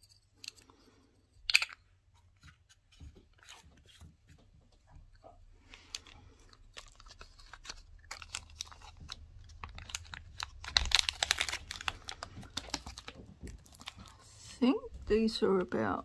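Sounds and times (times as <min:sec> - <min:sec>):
bubble wrap crinkling: 0:05.6 - 0:15.1.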